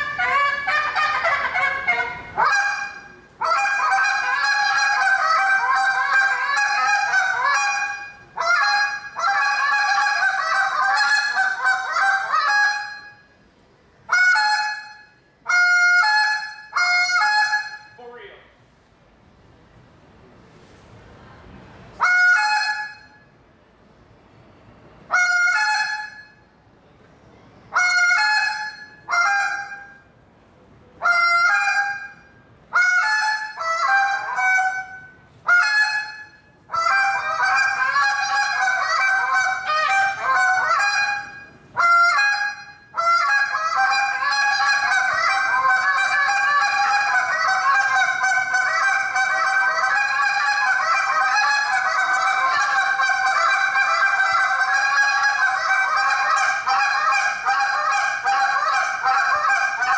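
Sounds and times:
goose call honks and clucks: 0:00.0 - 0:13.1, 0:27.8 - 0:29.9, 0:31.0 - 0:32.2, 0:32.8 - 0:59.9.

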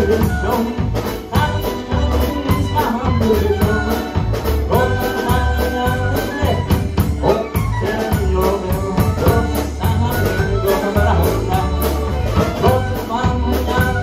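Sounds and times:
drum kit: 0:00.0 - 0:14.0
electric guitar: 0:00.0 - 0:14.0
live dance band playing: 0:00.0 - 0:14.0.

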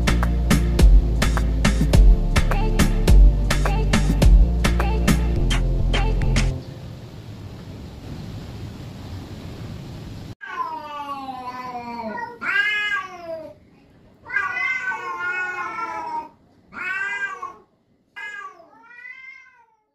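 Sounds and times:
steady hiss: 0:00.0 - 0:10.4
cats yowling: 0:10.4 - 0:13.6, 0:14.2 - 0:19.9.

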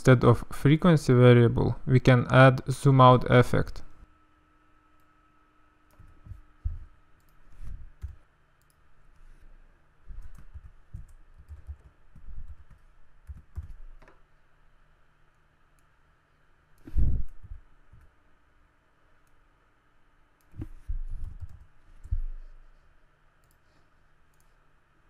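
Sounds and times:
typing on computer keyboard: 0:10.2 - 0:13.8, 0:21.2 - 0:21.7.

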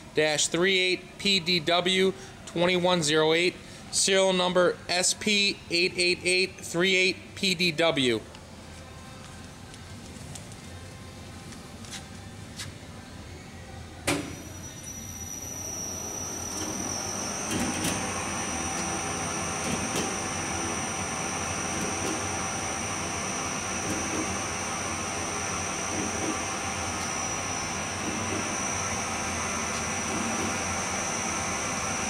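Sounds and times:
polishing machine humming and whining: 0:15.2 - 0:32.0.

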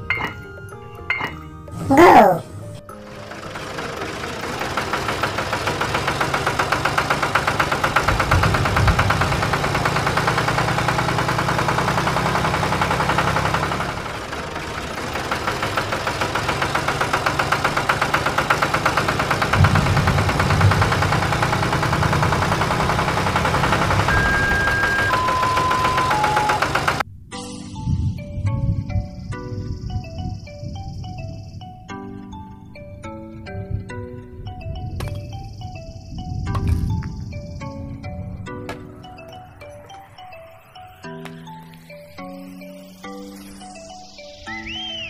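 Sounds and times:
tractor engine chugging: 0:02.9 - 0:27.0.

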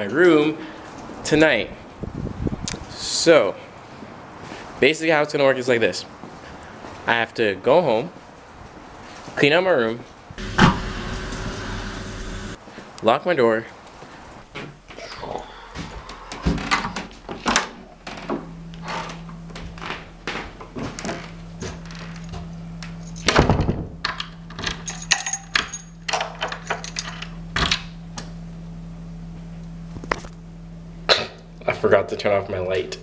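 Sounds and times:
door thudding: 0:10.4 - 0:11.1
low hum: 0:10.4 - 0:12.6
keys jangling: 0:23.0 - 0:23.4, 0:24.7 - 0:27.3.

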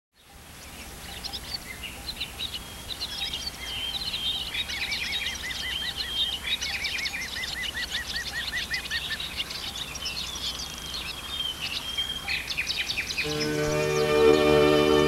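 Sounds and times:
birds chirping and trilling: 0:00.2 - 0:15.0
low steady hum: 0:13.1 - 0:15.0.

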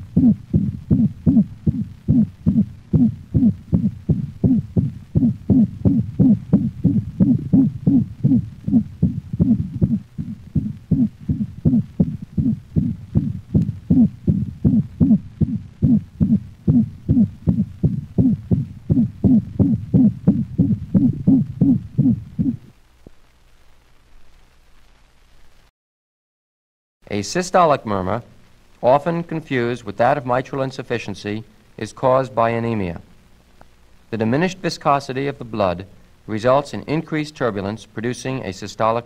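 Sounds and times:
pitched heart murmur: 0:00.0 - 0:22.7
faint hum: 0:00.0 - 0:25.7
dog heartbeat through stethoscope: 0:00.1 - 0:22.7.

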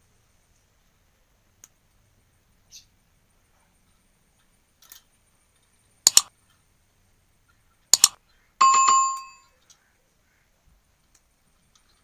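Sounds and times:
pliers snipping wire: 0:06.1 - 0:06.3, 0:08.0 - 0:08.2
metallic ringing strikes: 0:08.6 - 0:09.4.

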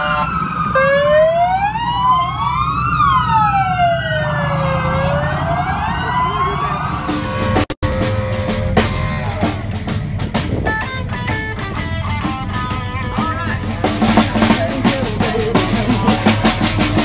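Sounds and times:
police sirens wailing: 0:00.0 - 0:17.0
band with drums and upright bass: 0:06.9 - 0:17.0.

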